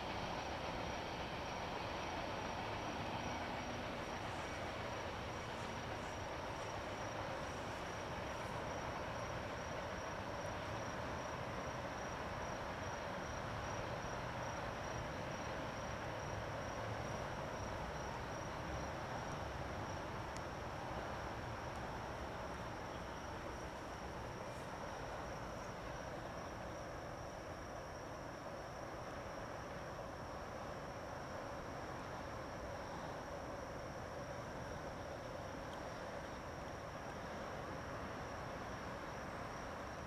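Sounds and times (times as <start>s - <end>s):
freight train rumbling: 0.0s - 27.6s
insects trilling: 0.0s - 40.0s.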